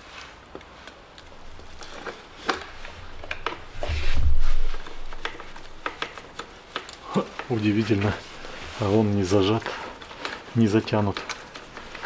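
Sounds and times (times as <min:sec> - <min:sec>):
low muffled rumble: 0:03.0 - 0:05.8.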